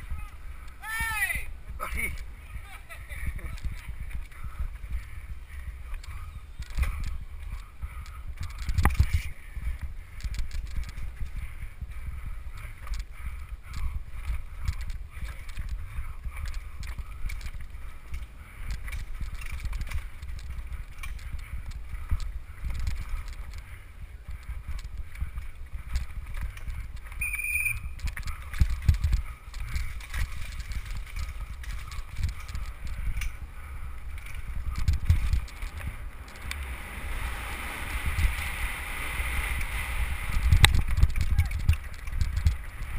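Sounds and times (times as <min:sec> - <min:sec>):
mountain bike rattling: 0:00.0 - 0:42.9
wind rumble on microphone: 0:00.0 - 0:42.9.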